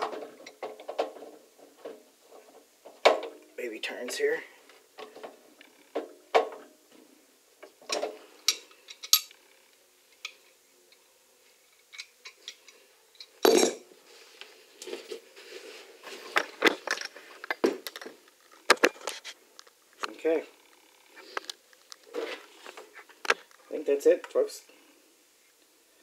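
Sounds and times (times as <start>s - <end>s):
hard objects clinking and knocking: 11.8s - 13.8s.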